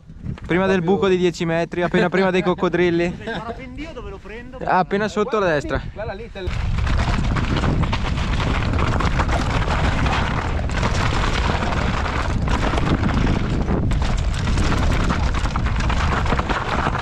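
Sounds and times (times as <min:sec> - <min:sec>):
wind on microphone: 0:00.0 - 0:17.0
tyres rattling over rocks: 0:06.4 - 0:17.0.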